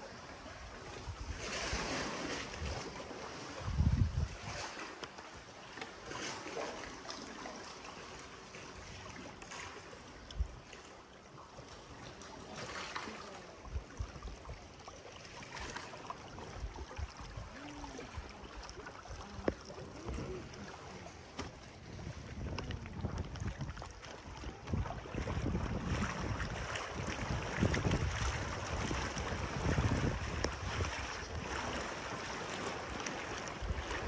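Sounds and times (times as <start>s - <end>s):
water splashing around boat: 0.0s - 34.0s
wind buffeting microphone: 3.5s - 4.6s, 21.5s - 31.9s.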